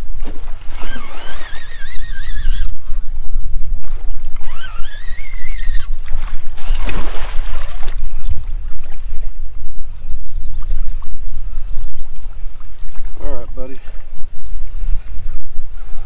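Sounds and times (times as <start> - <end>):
wind rumble on microphone: 0.0 - 16.0
fish thrashing and splashing: 6.0 - 8.2.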